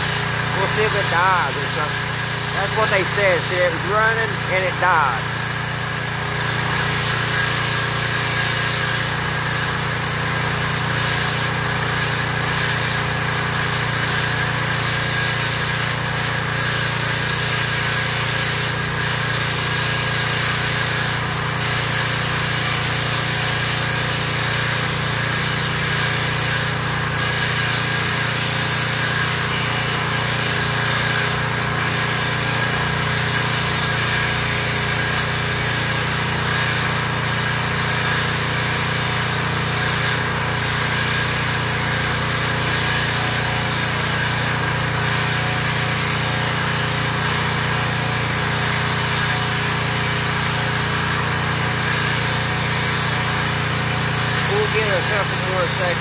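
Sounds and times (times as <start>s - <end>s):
small gasoline engine running: 0.0s - 56.0s.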